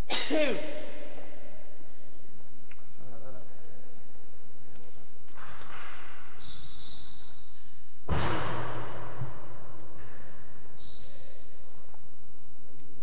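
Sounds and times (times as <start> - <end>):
shoes squeaking on court floor: 5.4 - 7.8.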